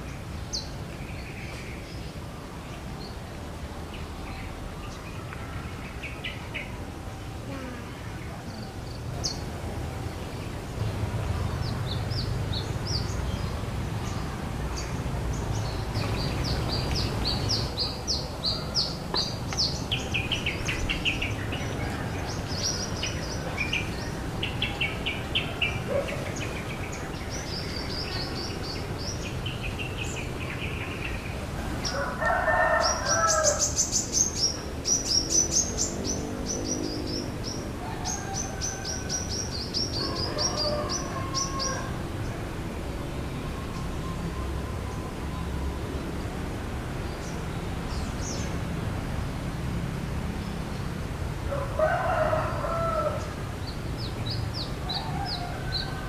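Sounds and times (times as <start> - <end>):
small birds chirping: 0.0 - 32.1, 32.8 - 41.9.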